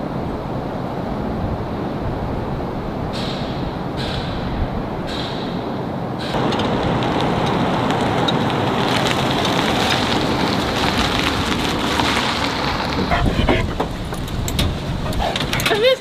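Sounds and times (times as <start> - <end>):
wind rushing and buffeting: 0.0 - 16.0
pickup truck driving past: 6.3 - 15.1
flag flapping: 6.4 - 15.6.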